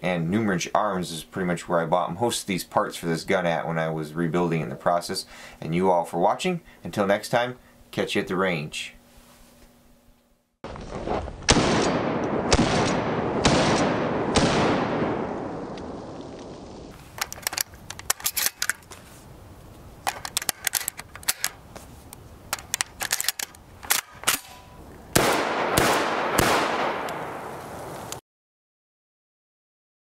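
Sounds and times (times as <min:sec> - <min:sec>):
shotgun shots echoing: 0:11.4 - 0:15.6, 0:23.9 - 0:27.6
shells clicking into magazine: 0:17.2 - 0:18.9, 0:20.1 - 0:21.6, 0:22.6 - 0:24.6.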